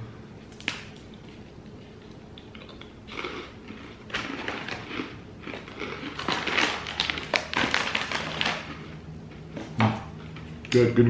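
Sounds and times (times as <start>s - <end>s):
snack bag crinkling: 0.4s - 9.0s
crunchy breadsticks chewed: 0.4s - 9.6s.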